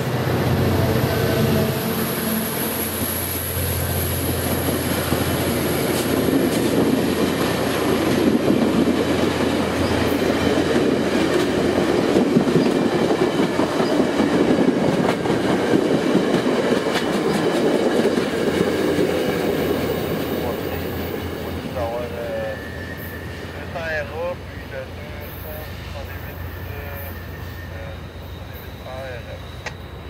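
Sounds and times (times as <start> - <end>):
locomotive engine drone: 0.0 - 15.9
train coaches rumbling: 0.0 - 30.0.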